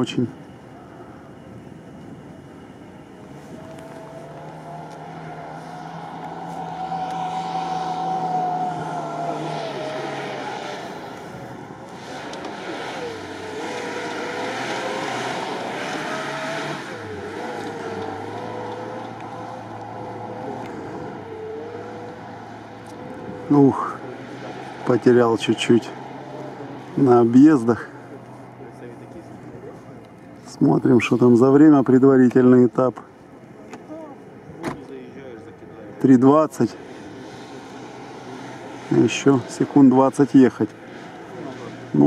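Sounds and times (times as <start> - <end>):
car engine revving hard: 3.5 - 27.8.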